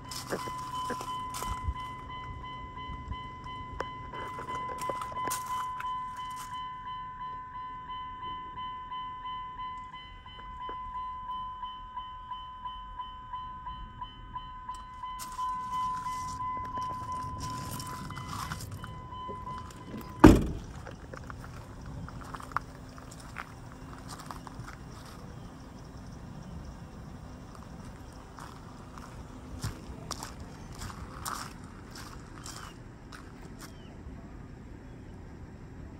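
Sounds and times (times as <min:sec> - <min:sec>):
car door warning chime: 0:00.0 - 0:22.8
car door shutting: 0:16.6 - 0:21.3.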